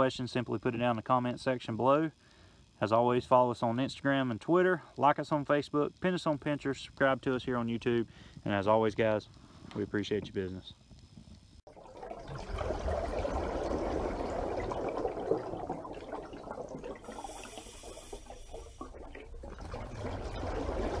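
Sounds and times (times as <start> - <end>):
rushing water: 18.6 - 21.0.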